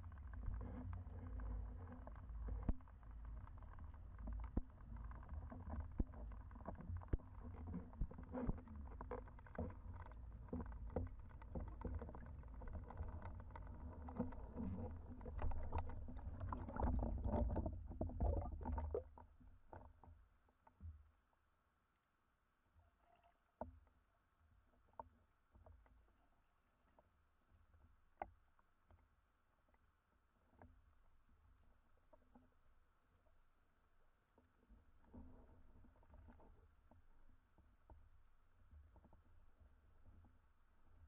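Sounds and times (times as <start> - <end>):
small clicks and knocks: 0.0 - 21.3
underwater rumble of water movement: 0.0 - 22.6, 23.5 - 41.0.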